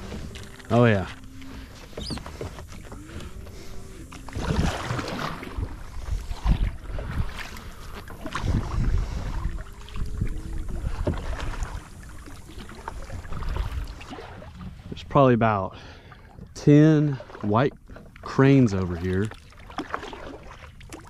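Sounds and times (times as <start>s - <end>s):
wind rumbling on microphone: 0.0s - 15.4s
paddle strokes splashing: 0.0s - 21.0s.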